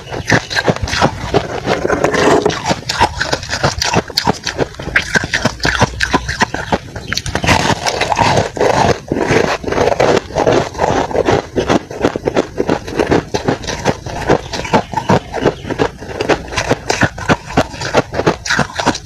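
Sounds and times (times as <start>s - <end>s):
crunching and chewing frost: 0.0s - 19.0s.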